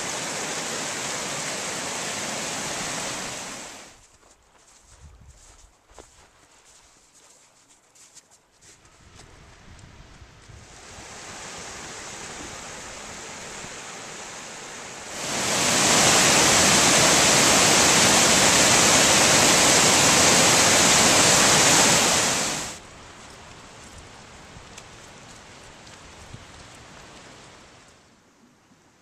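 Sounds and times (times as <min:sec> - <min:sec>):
creek water rushing: 0:00.0 - 0:04.0, 0:10.6 - 0:22.9
waterfall rushing: 0:00.0 - 0:04.0, 0:10.7 - 0:22.8.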